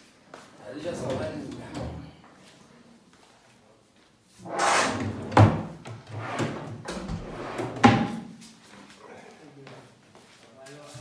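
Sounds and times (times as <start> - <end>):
drawers sliding and knocking shut: 4.4 - 8.3.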